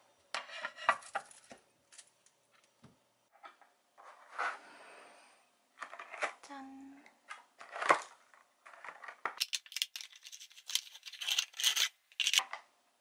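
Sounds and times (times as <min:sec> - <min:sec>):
plastic bag crinkling: 0:09.4 - 0:12.4.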